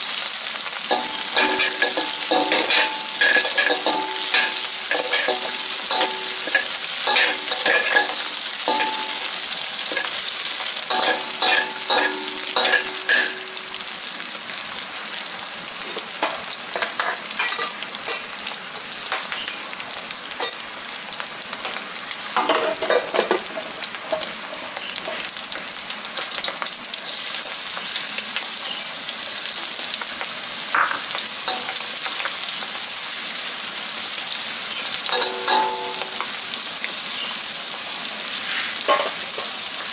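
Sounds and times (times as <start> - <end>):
eggs sizzling in hot oil: 0.0 - 39.9
metal spatula scraping a wok: 0.9 - 13.5, 38.4 - 39.5.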